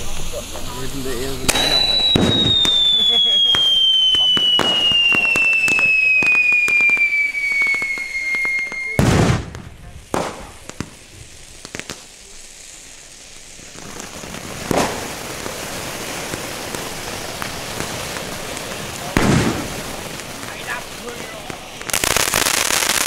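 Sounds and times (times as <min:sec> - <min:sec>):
firework bangs: 0:00.0 - 0:23.0
sparks crackling hiss: 0:00.0 - 0:23.0
firework falling whistle: 0:01.1 - 0:10.5.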